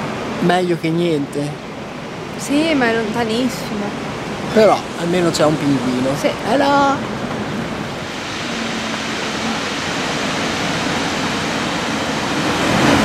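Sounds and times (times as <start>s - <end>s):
ocean surf breaking on beach: 0.0s - 13.0s.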